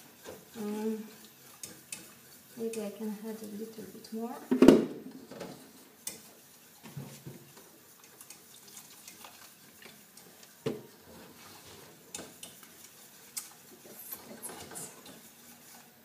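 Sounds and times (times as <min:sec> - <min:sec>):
utensil scraping a metal saucepan: 0:00.0 - 0:04.4, 0:11.2 - 0:16.0.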